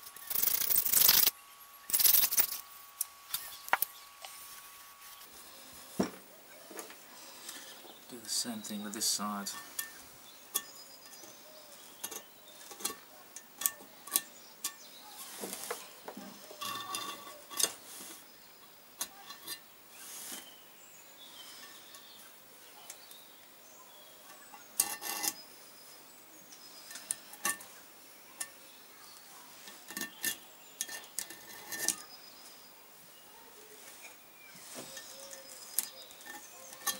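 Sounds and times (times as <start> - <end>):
tool scraping metal: 0.0 - 1.3, 9.1 - 10.0, 12.0 - 18.2, 24.3 - 25.4, 29.6 - 32.2, 34.6 - 36.9.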